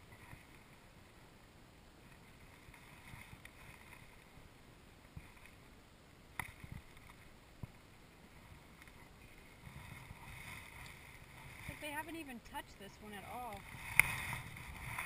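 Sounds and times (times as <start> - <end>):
faint outdoor background noise: 0.0 - 15.0.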